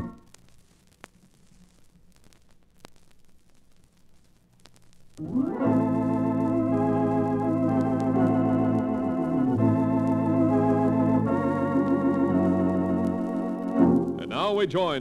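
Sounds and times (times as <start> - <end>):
organ chords with vibrato: 5.2 - 15.0.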